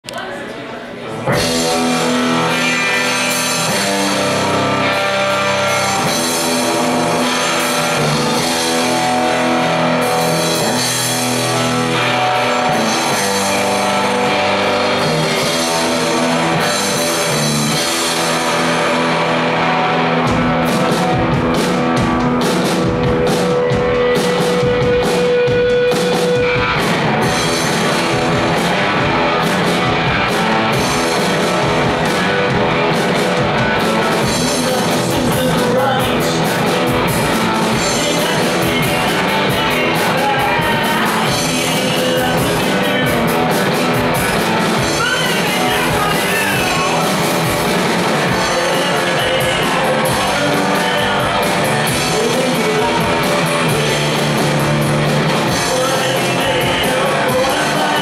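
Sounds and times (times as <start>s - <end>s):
electric guitars ringing chords: 1.2s - 58.0s
drum kit hits and cymbals: 1.3s - 58.0s.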